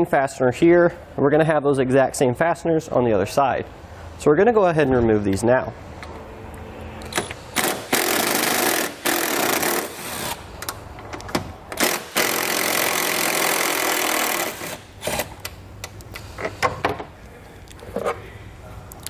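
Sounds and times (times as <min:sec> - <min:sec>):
power driver running in bursts: 0:07.5 - 0:10.4, 0:11.8 - 0:15.4.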